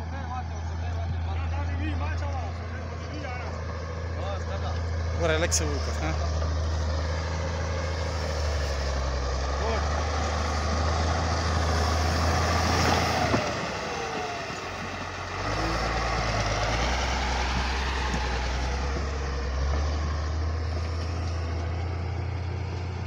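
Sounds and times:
diesel engine running: 0.0s - 23.0s.

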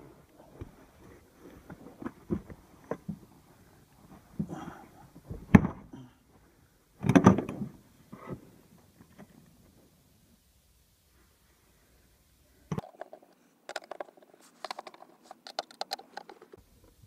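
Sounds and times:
seat clips clicking and knocking: 7.0s - 7.6s.

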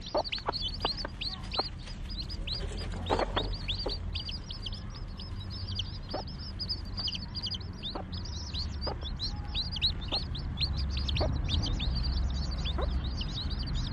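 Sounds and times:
chicks peeping: 0.0s - 13.9s.

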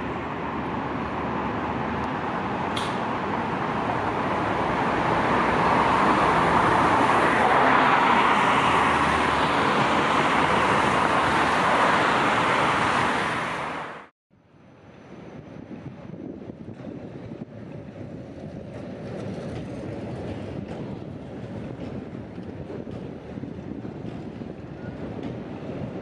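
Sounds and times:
trams and cars passing: 0.0s - 26.0s.

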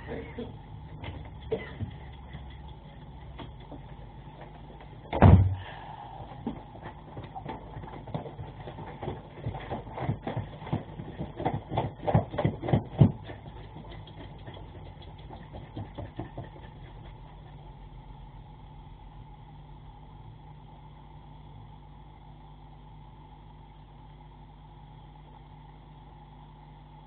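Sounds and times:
steady low hum: 0.0s - 27.0s
dog legs knocking on floor: 0.9s - 5.4s, 6.4s - 17.6s.

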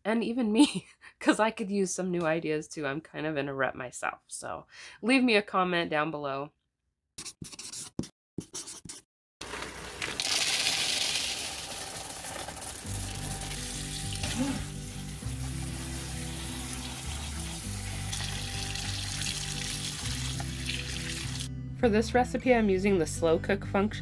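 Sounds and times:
beans stirred by hand: 9.4s - 18.4s
tap water running into colander: 9.4s - 21.5s
background music with bass line: 12.9s - 24.0s.

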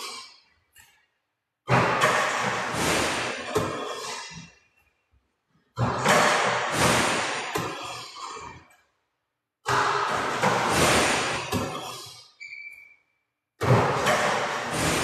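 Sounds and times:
basketball through net and machine: 1.7s - 4.2s, 5.8s - 8.6s, 9.7s - 11.9s, 13.6s - 15.0s.

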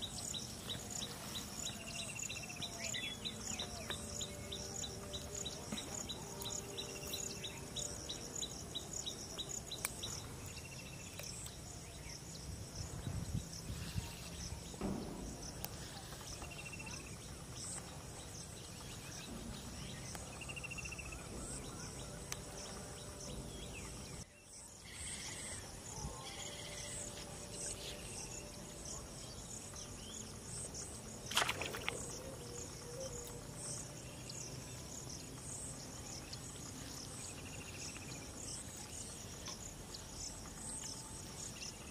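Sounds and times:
insects trilling: 0.0s - 41.9s.

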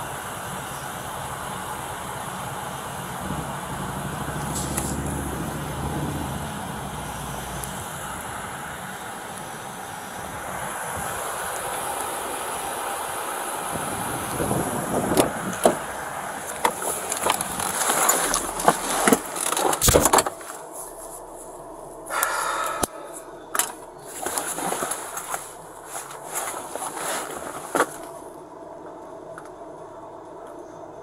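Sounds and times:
outdoor background noise: 0.0s - 31.0s
car door shutting: 15.0s - 16.0s, 16.6s - 20.5s.

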